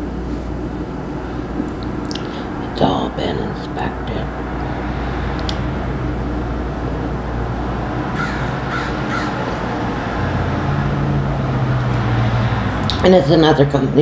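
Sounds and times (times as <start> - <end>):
steady low hum: 0.0 - 14.0
crow cawing: 8.1 - 9.8.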